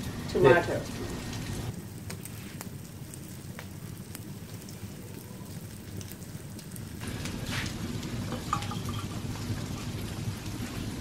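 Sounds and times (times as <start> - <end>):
omelette sizzling in oil: 0.0 - 11.0
kitchenware clatter: 8.3 - 10.0.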